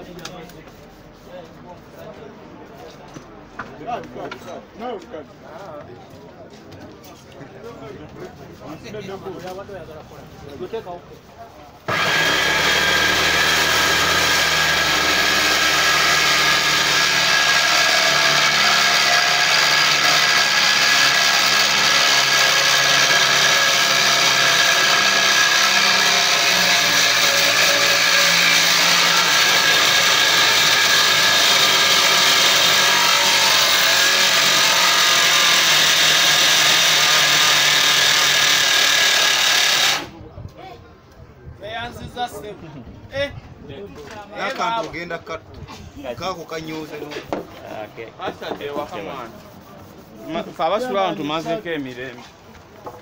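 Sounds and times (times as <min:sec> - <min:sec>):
table saw cutting board: 0:11.9 - 0:40.1.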